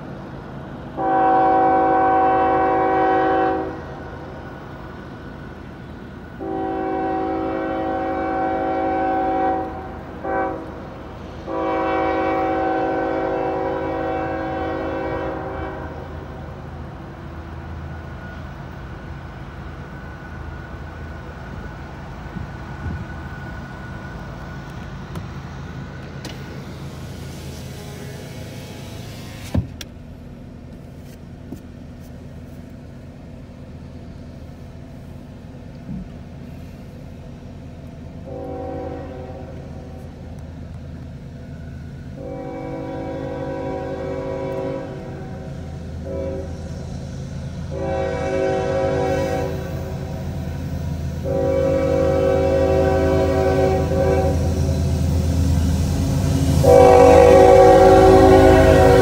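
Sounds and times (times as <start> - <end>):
locomotive air horn blasts: 1.0 - 4.3, 6.4 - 16.5, 27.5 - 29.5, 38.2 - 40.2, 42.1 - 46.8, 47.5 - 59.0.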